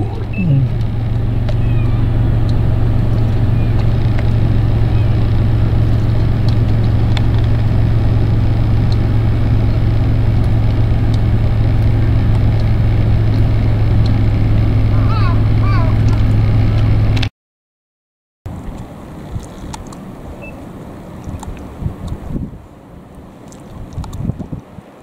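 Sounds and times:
engine idling: 0.0 - 17.2
gull calls: 1.4 - 2.3, 3.4 - 3.9.

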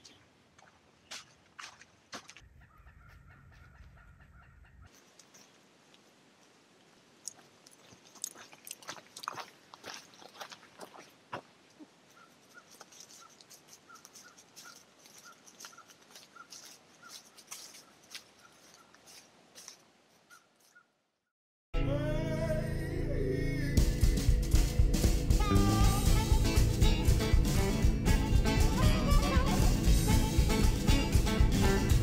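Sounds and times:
footsteps crunching on dry leaves: 7.4 - 11.5, 12.3 - 20.8.

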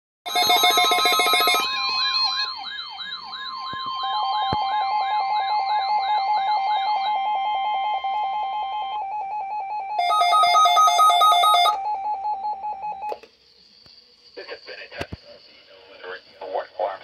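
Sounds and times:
loud beeping pattern: 0.3 - 8.0
steady alarm tones: 0.3 - 13.1
warbling siren-like tone: 1.6 - 10.0.

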